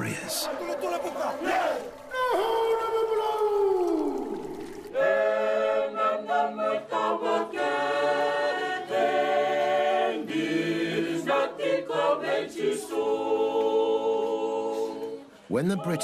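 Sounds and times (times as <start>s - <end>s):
choir singing in harmony: 4.9s - 16.0s.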